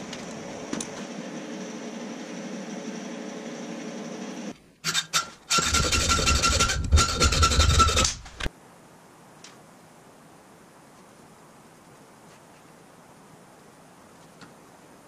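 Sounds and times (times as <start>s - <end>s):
steady hum: 0.0s - 4.6s.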